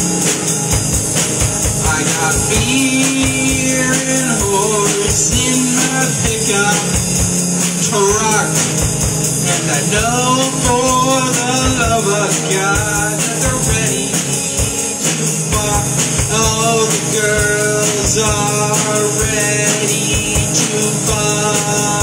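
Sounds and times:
drum hits and cymbals: 0.0 - 22.0
electric guitar: 0.0 - 22.0.

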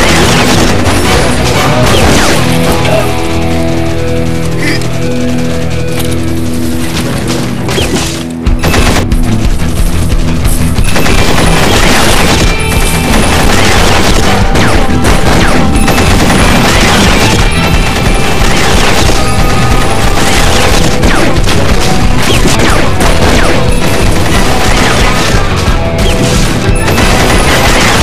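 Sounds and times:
loud action music: 0.0 - 28.0
rapid gunfire: 0.0 - 28.0.

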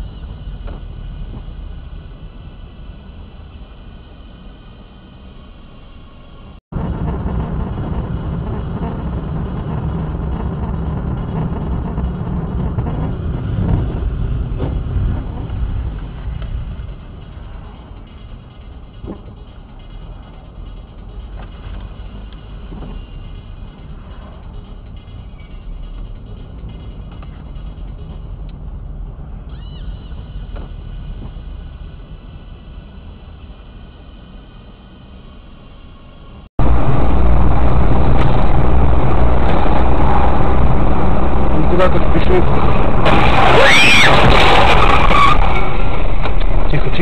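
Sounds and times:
car road and engine noise: 0.0 - 47.0
brief high squeak: 25.2 - 25.8, 29.5 - 30.6.

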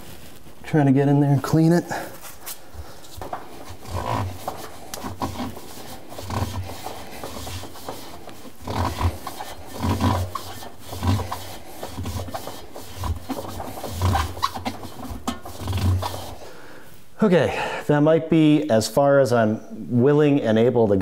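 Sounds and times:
gloved hands scrubbing rubber seal: 1.3 - 16.6.

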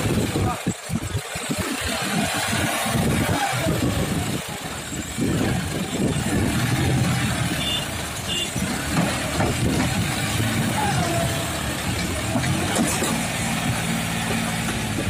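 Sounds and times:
tractor diesel engine under load: 0.0 - 15.0.

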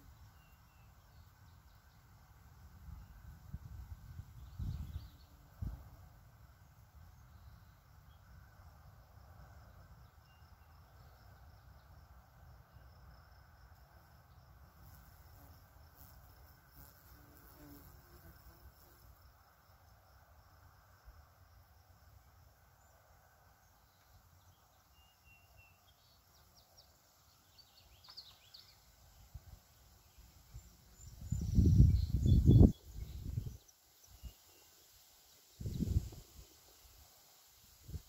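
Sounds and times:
wind buffeting microphone: 31.1 - 33.6.

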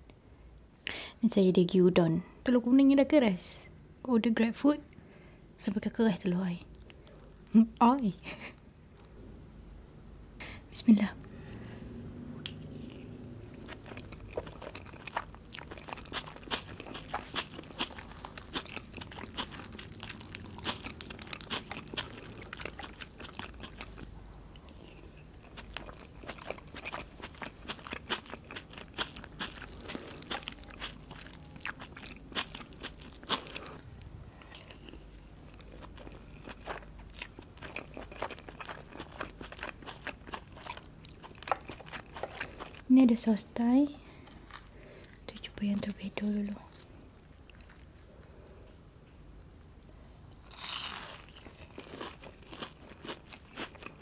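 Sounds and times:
close chewing with mouth clicks: 12.4 - 42.9, 50.3 - 54.0.

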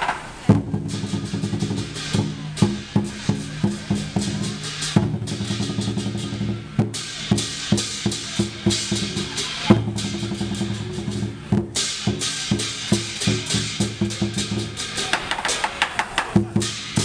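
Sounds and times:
booming drum beats: 0.0 - 17.0
cymbals crashing: 0.0 - 17.0.

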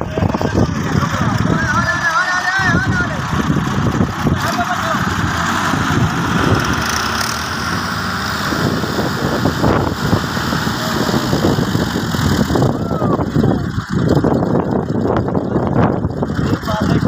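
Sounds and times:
tractor diesel engine running: 0.0 - 17.0.

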